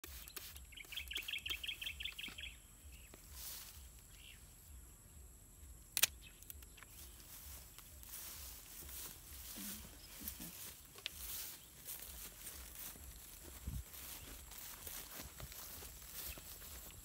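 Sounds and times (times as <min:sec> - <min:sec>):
bird chirping: 0:00.1 - 0:17.0
pruning shears snipping: 0:05.9 - 0:07.0.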